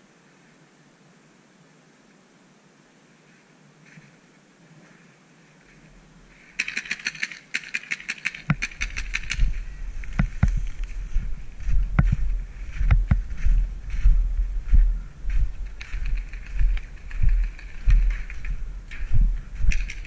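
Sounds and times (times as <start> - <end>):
paintball markers firing rapidly: 6.6 - 10.8, 15.8 - 18.5
rumble on camera microphone: 8.5 - 20.0.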